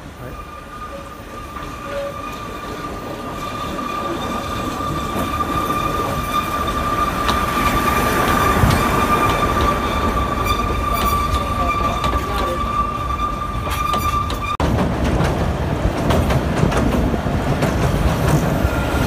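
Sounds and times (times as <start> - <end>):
train running rumble: 0.0 - 19.0
train wheels squealing: 0.1 - 14.6.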